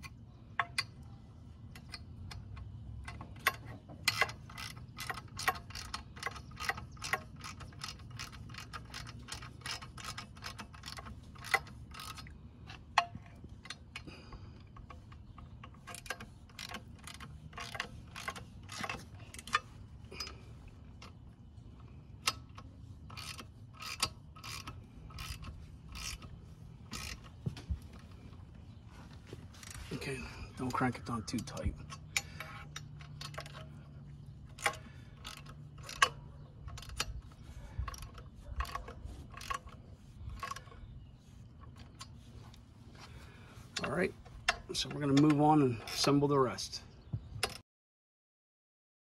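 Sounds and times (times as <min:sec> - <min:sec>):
ratchet wrench clicking: 0:01.7 - 0:14.1, 0:14.7 - 0:20.4, 0:22.2 - 0:27.3, 0:31.5 - 0:40.8.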